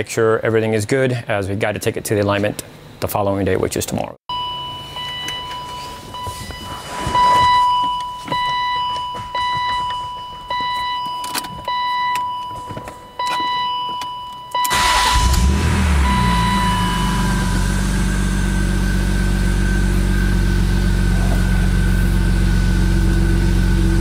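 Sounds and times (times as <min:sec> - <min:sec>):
repeating electronic warning chime: 0:04.3 - 0:20.3
car engine starting and idling: 0:14.6 - 0:24.0.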